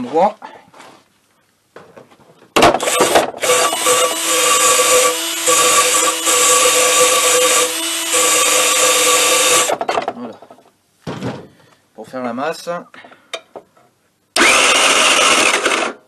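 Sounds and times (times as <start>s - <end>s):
starter motor whirring: 14.4s - 16.0s.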